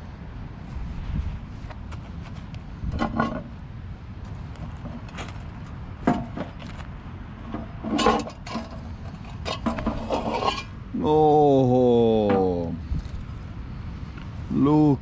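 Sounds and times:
steady low rumble: 0.0s - 15.0s
metal lid knocking and scraping: 2.9s - 3.5s, 6.0s - 6.7s, 7.4s - 10.7s.

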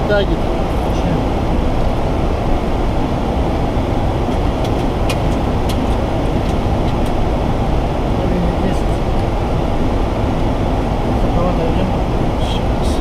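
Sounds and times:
cockpit airflow rush: 0.0s - 13.0s.

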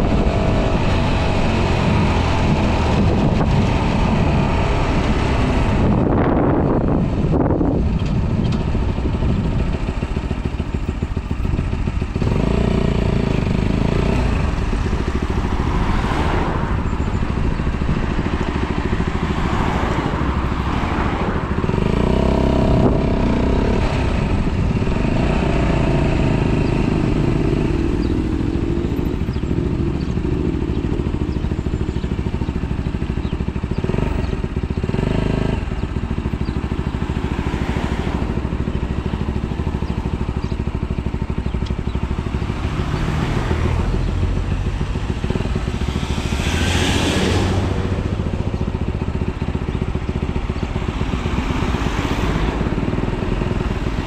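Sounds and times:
wind rumble on microphone: 0.0s - 37.1s
motorcycle engine running: 0.0s - 54.0s.

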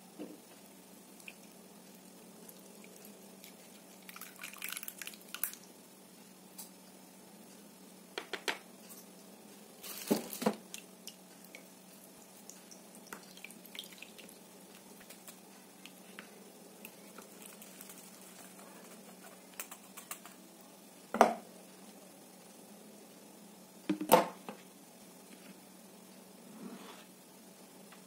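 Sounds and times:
batter dripping into bowl: 1.2s - 5.7s, 10.6s - 20.3s.

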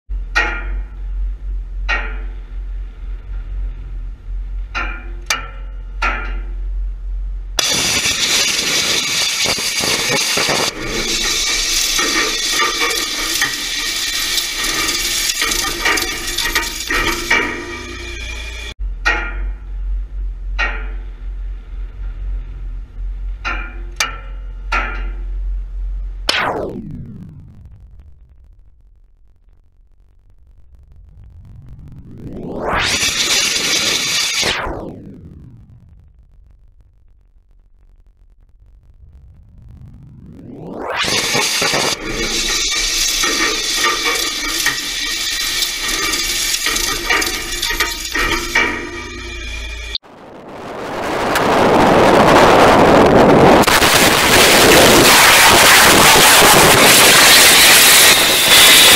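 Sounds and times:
low rumble: 0.1s - 58.9s
rocket engine roaring: 26.2s - 58.9s
rocket engine blast: 50.0s - 58.9s.

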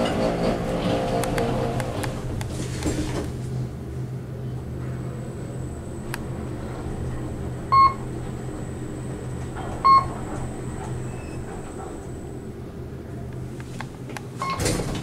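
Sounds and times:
elevator car hum: 0.0s - 15.0s
elevator floor beeps: 7.7s - 8.2s, 9.7s - 12.0s, 14.4s - 14.8s.

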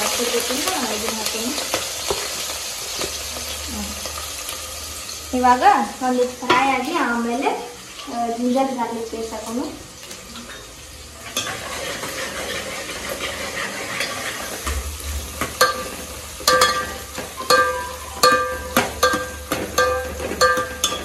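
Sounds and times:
onions sizzling in hot oil: 0.0s - 21.0s
metal ladle stirring: 15.6s - 21.0s.

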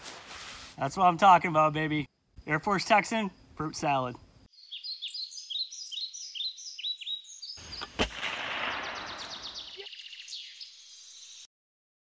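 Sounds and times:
songbirds chirping: 0.8s - 8.0s, 8.6s - 11.5s
loud shot-like bang: 8.0s - 9.8s.

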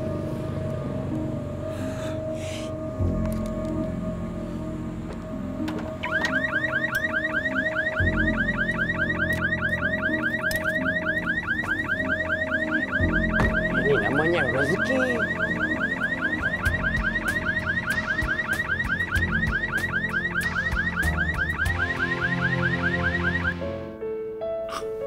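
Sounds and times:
background music: 0.0s - 25.0s
car alarm chirping: 6.0s - 23.6s.

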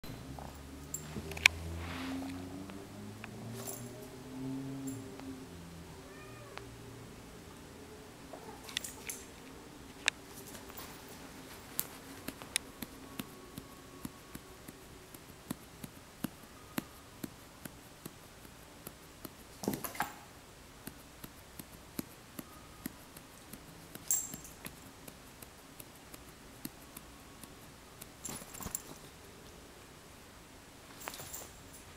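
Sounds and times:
kitten meowing faintly: 5.9s - 6.8s
sharp clicks: 11.8s - 20.2s, 20.8s - 29.0s.

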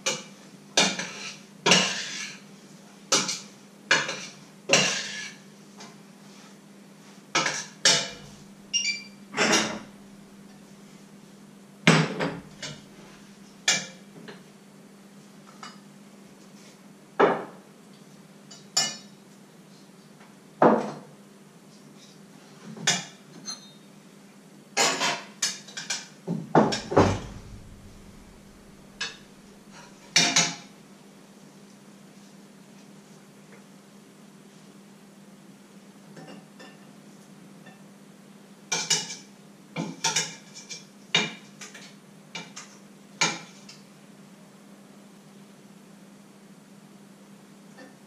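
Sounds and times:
faint steady hum: 0.0s - 24.8s, 26.3s - 48.0s
metal pots and utensils clattering: 0.8s - 2.3s, 3.2s - 5.4s, 26.6s - 30.6s.

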